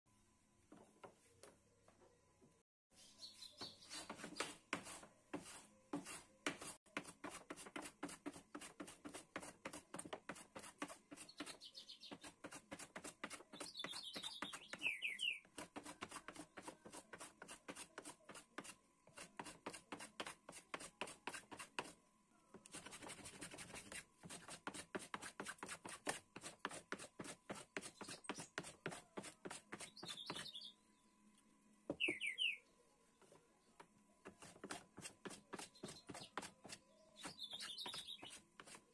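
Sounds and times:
bird chirping: 2.9 - 4.6, 11.2 - 12.4, 13.5 - 15.5, 29.8 - 31.1, 31.9 - 33.3, 35.6 - 38.4
hand plane shaving wood: 15.6 - 22.0.

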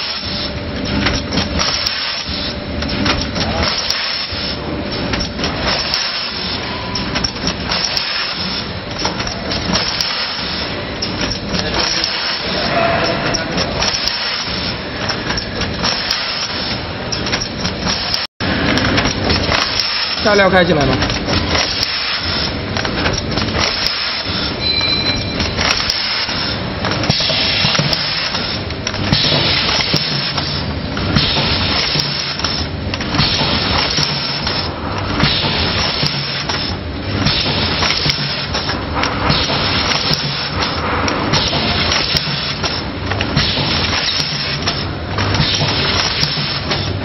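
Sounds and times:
machine clattering: 0.0 - 47.0
short high squeal: 24.6 - 25.5.

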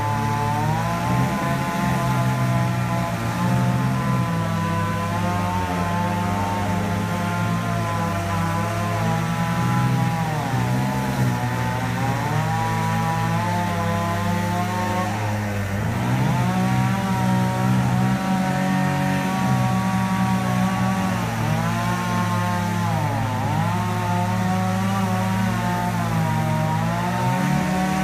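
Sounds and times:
high-pitched chainsaw bogging: 0.0 - 28.0
lower chainsaw running steadily: 0.0 - 28.0.

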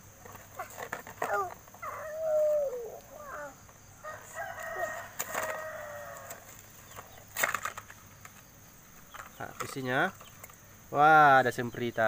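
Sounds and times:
rooster crowing: 3.3 - 6.5.

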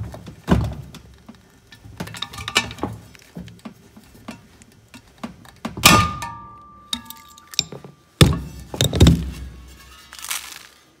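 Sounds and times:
steel wheel thudding: 1.8 - 10.2.

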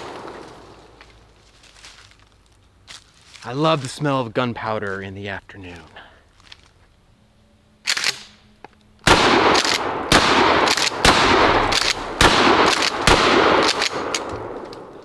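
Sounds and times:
shotgun shots with echoes: 9.1 - 14.6.

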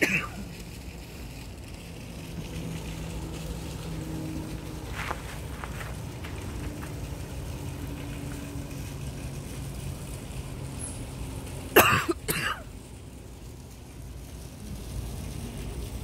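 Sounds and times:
person coughing: 0.0 - 0.5, 11.8 - 12.7.

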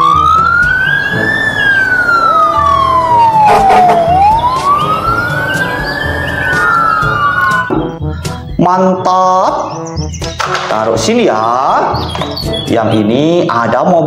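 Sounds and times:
fire engine siren wailing: 0.0 - 8.0.

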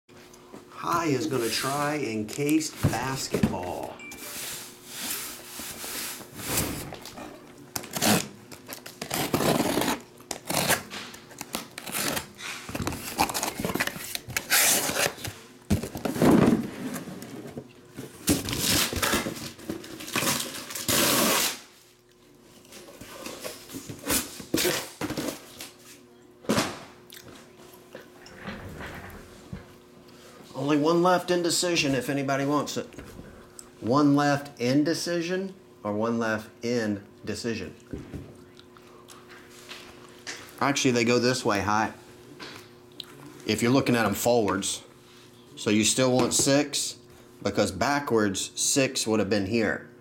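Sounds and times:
packing tape tearing: 7.8 - 16.2, 18.2 - 21.8
cardboard boxes rustling and scraping: 11.9 - 20.9.

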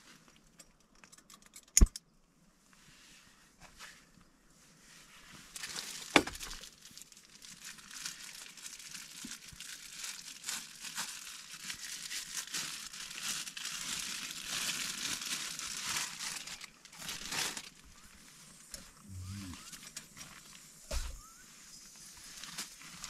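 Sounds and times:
plastic packaging crinkling: 5.5 - 23.0.

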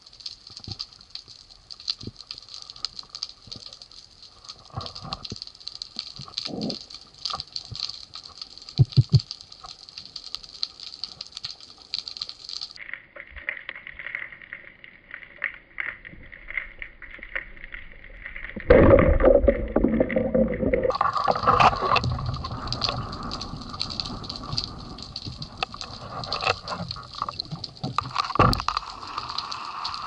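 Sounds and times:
muffled underwater rushing water: 17.6 - 30.0
knocks of gear underwater: 18.5 - 29.0.

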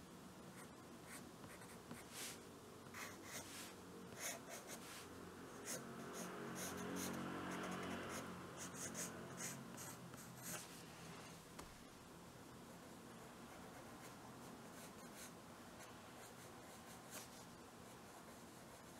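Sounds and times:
pencil scratching on paper: 5.6 - 10.7.

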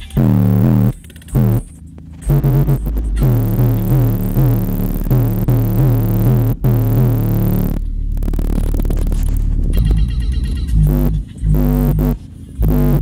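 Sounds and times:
bass-heavy electronic music: 0.0 - 13.0.

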